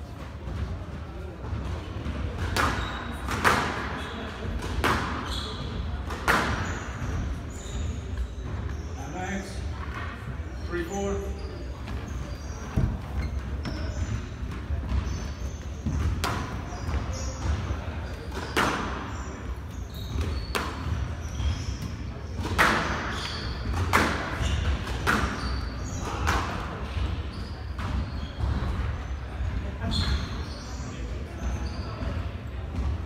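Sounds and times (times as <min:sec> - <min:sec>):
squash ball cracking off rackets and walls: 0:01.6 - 0:05.4, 0:06.0 - 0:07.2
shoes squeaking on wooden floor: 0:02.4 - 0:26.2, 0:27.2 - 0:28.7, 0:29.8 - 0:32.3.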